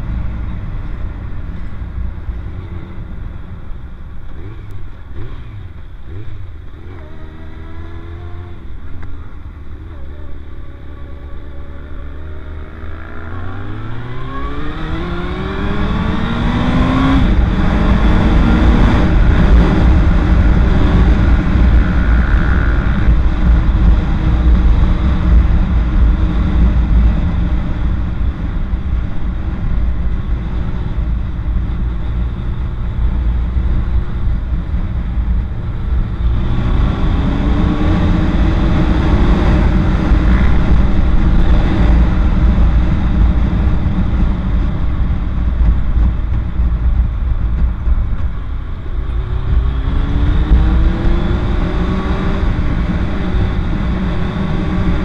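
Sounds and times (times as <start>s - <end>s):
motorcycle engine accelerating: 0.0s - 55.0s
wind rushing on microphone: 13.6s - 55.0s.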